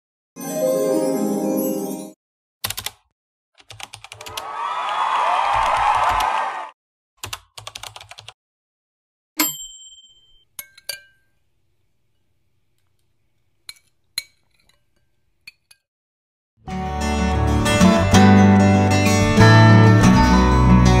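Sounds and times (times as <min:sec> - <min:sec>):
bright chime ding: 0:09.4 - 0:10.4.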